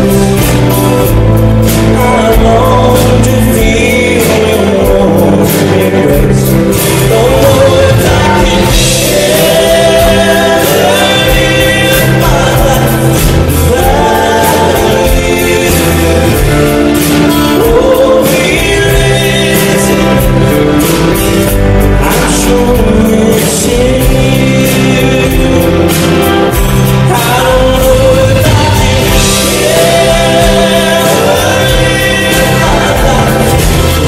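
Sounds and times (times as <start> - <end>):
country band playing: 0.0 - 34.0
man singing: 0.0 - 34.0.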